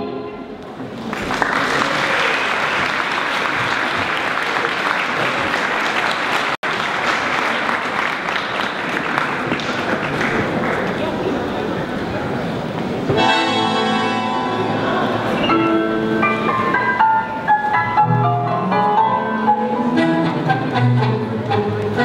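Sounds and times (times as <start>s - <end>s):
tango music: 0.0s - 1.0s, 11.6s - 22.0s
audience applause: 0.8s - 11.8s.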